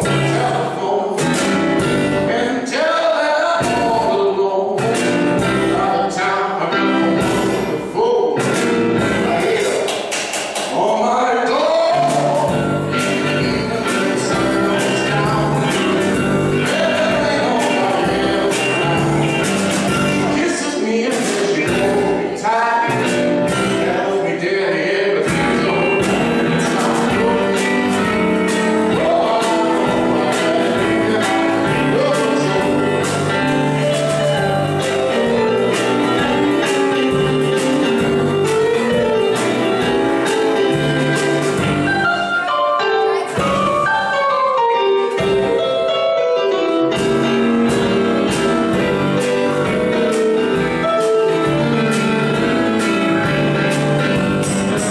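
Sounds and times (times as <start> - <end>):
man singing: 0.0 - 10.1, 10.7 - 42.0
keyboard: 0.0 - 54.9
drum and cymbal beat: 8.4 - 10.8, 11.9 - 22.3, 22.9 - 23.9, 25.2 - 42.4, 46.9 - 54.9.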